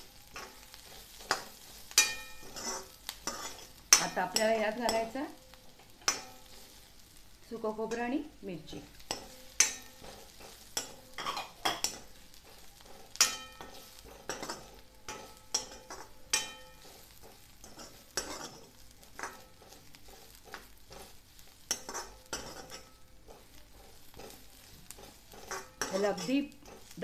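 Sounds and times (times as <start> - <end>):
spoon scraping in pan: 0.0 - 7.2, 8.7 - 27.0
spoon clinking against pan: 0.3 - 5.1, 6.0 - 6.5, 9.0 - 19.8, 21.7 - 23.4, 24.1 - 27.0.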